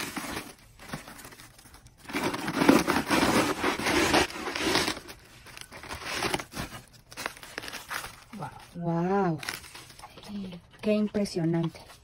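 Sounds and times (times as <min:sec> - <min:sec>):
knife cutting papery nest: 0:02.0 - 0:08.4.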